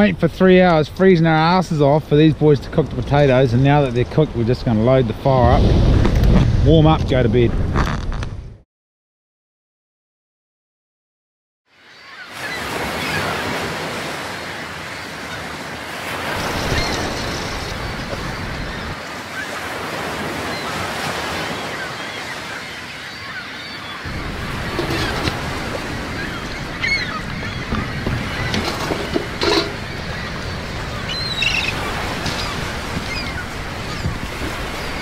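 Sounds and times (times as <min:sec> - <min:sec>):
surf washing onto stony beach: 0:12.3 - 0:23.4, 0:24.0 - 0:35.0.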